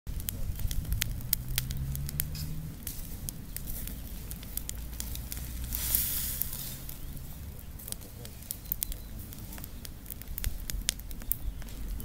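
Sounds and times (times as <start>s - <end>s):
dry leaves burning and crackling: 0.1s - 12.0s
rushing hiss: 5.6s - 6.9s.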